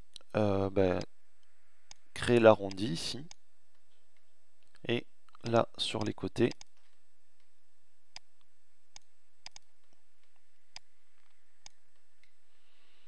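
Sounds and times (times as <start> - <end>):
faint steady hiss: 0.0 - 13.0
computer mouse buttons clicking: 5.3 - 6.8, 8.9 - 10.0.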